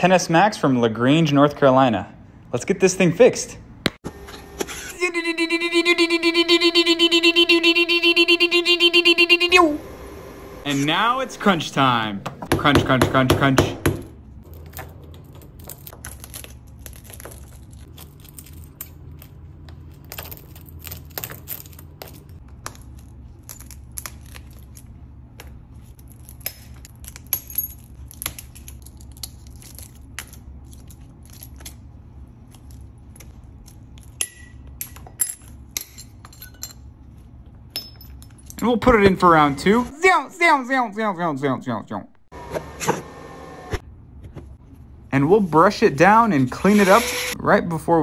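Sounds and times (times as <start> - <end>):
low steady hum: 0.0 - 48.0
glass crunching and cracking: 14.4 - 24.8, 26.0 - 31.8.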